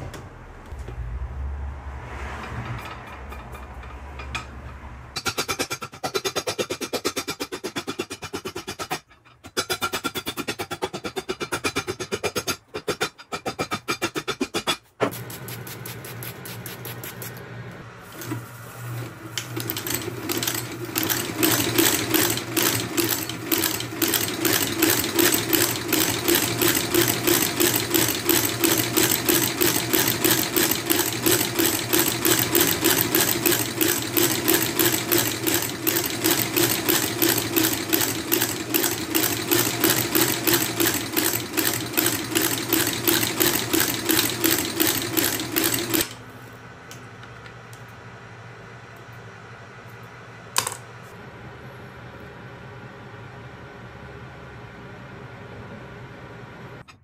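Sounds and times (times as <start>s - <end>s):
shoe-repair machine running: 15.0s - 46.2s.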